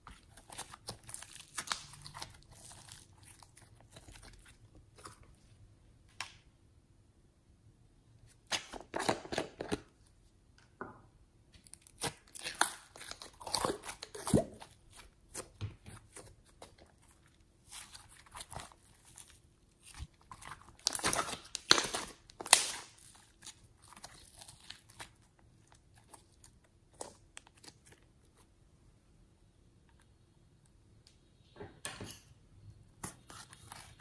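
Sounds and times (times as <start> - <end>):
slime crackling and popping: 0.2 - 4.6, 17.6 - 27.8.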